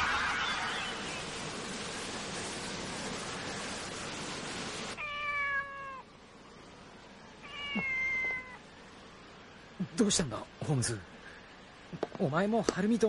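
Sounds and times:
steady rushing noise: 0.0 - 5.0
cat meowing: 5.0 - 6.1, 7.4 - 8.6.

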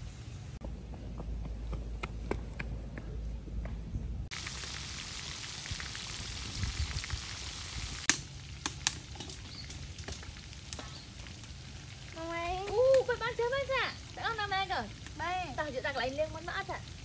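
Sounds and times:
oil sizzling deep-frying: 4.3 - 17.0.

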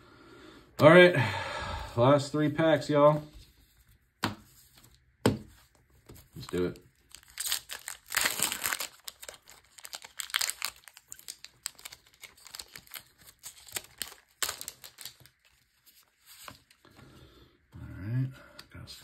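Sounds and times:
foil wrapper crinkling and tearing: 6.4 - 16.8.

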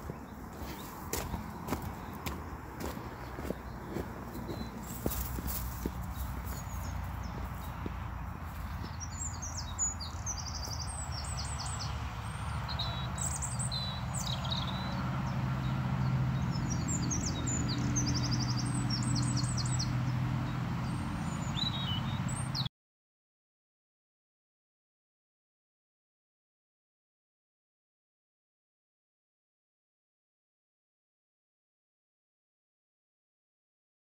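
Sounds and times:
songbirds chirping and trilling: 0.0 - 22.7.

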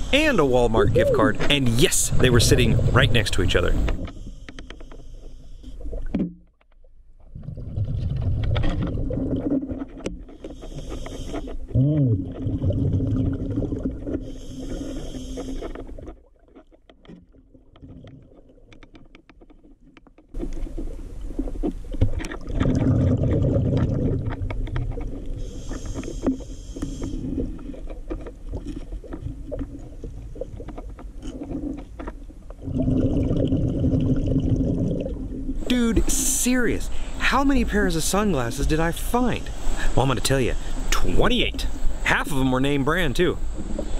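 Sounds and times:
exhaled bubbles rumbling underwater: 7.2 - 10.3, 11.6 - 15.2, 20.7 - 35.7
regulator inhale hiss: 10.4 - 11.6, 14.2 - 15.8, 25.4 - 27.4, 36.9 - 37.2, 39.5 - 40.0.

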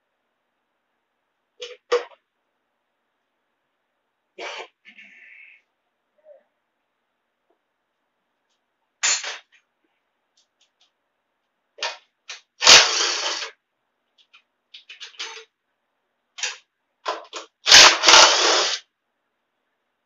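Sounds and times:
small clicks and rattles: 10.3 - 12.8, 13.4 - 15.6
impact driver bursts: 12.6 - 13.5, 17.7 - 18.8.

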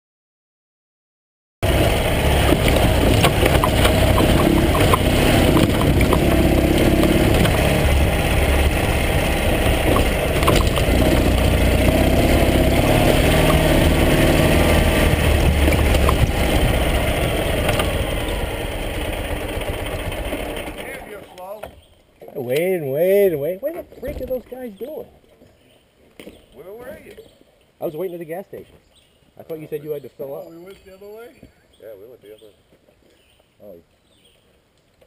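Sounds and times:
motorcycle engine running: 1.6 - 21.2
knocks and rattles: 1.7 - 18.4.

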